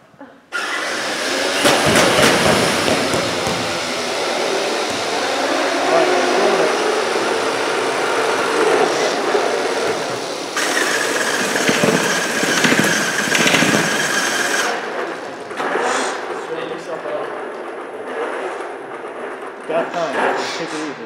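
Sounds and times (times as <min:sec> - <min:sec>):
robot electric motors running: 0:00.5 - 0:19.6
high steady whine: 0:00.7 - 0:15.0.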